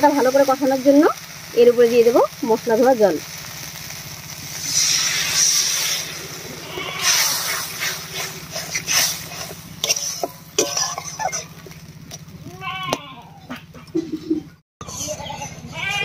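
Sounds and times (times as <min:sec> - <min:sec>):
water sizzling in hot pan: 0:00.0 - 0:13.0
metal spatula scraping pan: 0:04.8 - 0:11.8.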